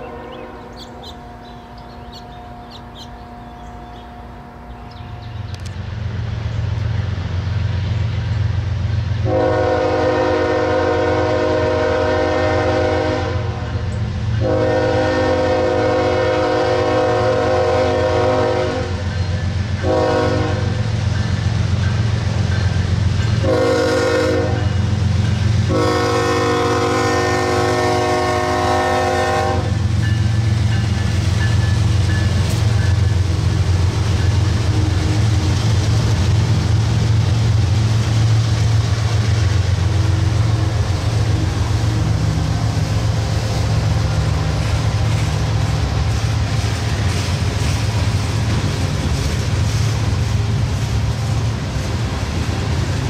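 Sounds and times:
locomotive air horn blasts: 0.0 - 5.4, 9.2 - 19.1, 19.8 - 20.8, 23.4 - 24.9, 25.6 - 29.9, 34.6 - 35.6, 39.7 - 47.2
diesel engine rumbling: 29.8 - 53.0.

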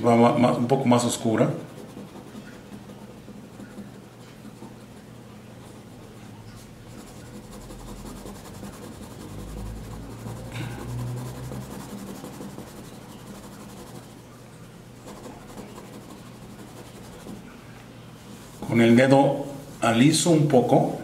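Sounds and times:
pencil scratching on paper: 0.0 - 20.7
steady low hum: 0.0 - 21.0.

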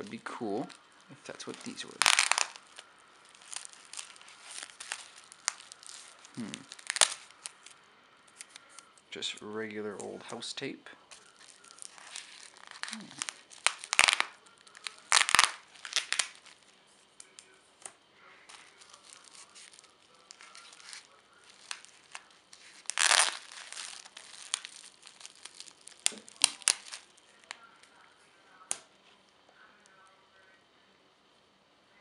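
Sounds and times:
tape being peeled off: 0.0 - 9.0, 11.1 - 27.6
bubble wrap crinkling: 0.0 - 10.4, 11.1 - 30.0.

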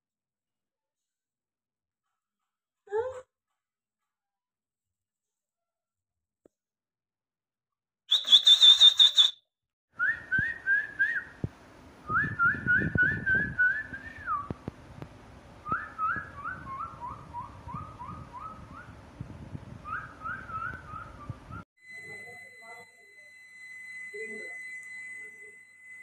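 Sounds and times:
short whistled notes: 8.1 - 9.4.

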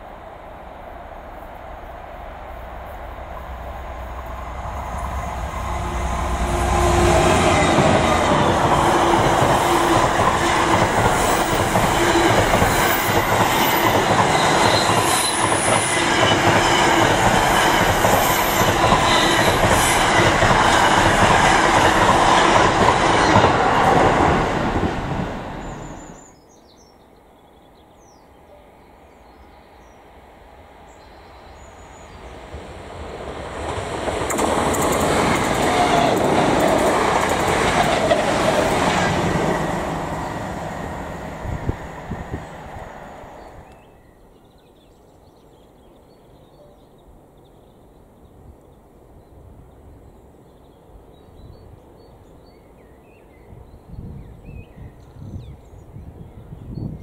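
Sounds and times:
diesel locomotive rumbling: 0.0 - 26.2, 32.0 - 43.8
faint outdoor background: 0.0 - 57.0
train wheels clattering on rails: 6.1 - 25.4, 32.6 - 41.0.

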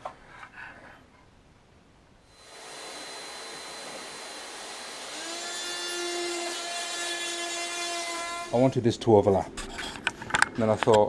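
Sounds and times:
oscillating multi-tool whirring: 2.3 - 8.6.

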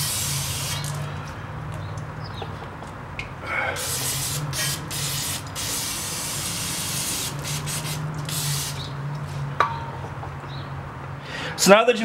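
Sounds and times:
aerosol can spraying: 0.0 - 1.0, 3.8 - 8.9.

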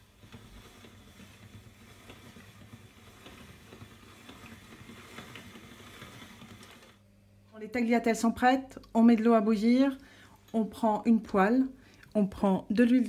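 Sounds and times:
pasta machine clicking and rattling: 0.0 - 7.0.

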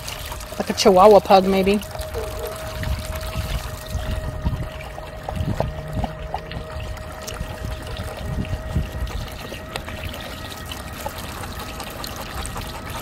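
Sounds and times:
water trickling into metal bowl: 0.0 - 13.0.

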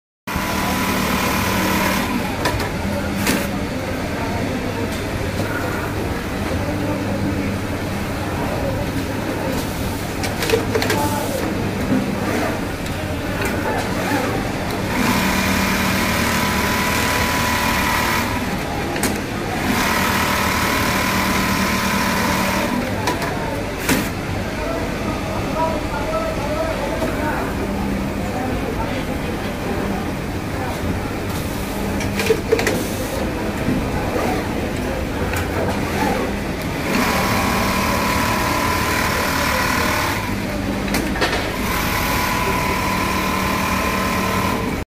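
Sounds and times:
sewing machine humming: 0.3 - 2.6, 13.8 - 23.0, 35.7 - 40.9, 41.5 - 44.8.

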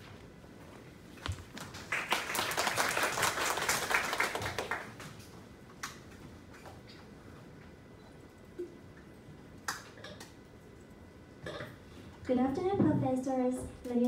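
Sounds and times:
audience applauding: 1.6 - 5.1.

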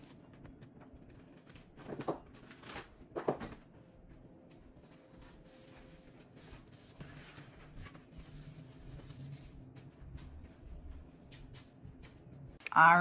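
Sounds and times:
plastic platters rustling and knocking: 0.2 - 3.6.

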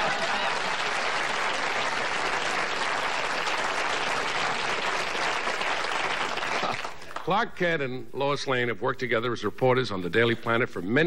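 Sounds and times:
studio audience applauding: 0.0 - 7.5.

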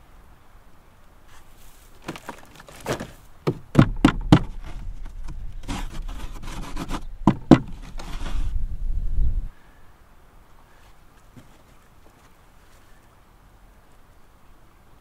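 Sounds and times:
sharp knocks on dried hide: 2.0 - 4.8, 7.2 - 7.8.

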